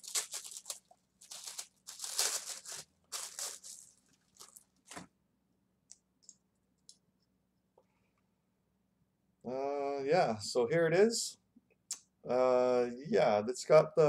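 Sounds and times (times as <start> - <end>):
paper tearing and crinkling: 0.0 - 5.0.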